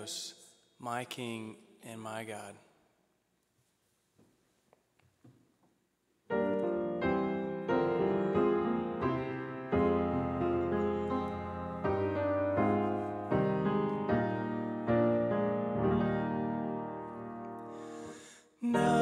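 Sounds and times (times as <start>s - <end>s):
piano chords: 6.3s - 19.0s.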